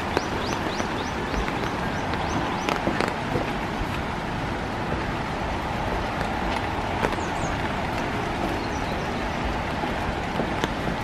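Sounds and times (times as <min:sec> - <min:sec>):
footsteps on wooden boardwalk: 0:00.0 - 0:11.0
rain falling on trees: 0:00.0 - 0:11.0.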